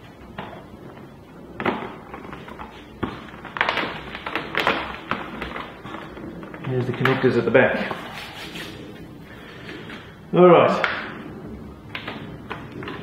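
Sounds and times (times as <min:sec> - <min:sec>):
clicks and rustles: 0:00.1 - 0:10.1.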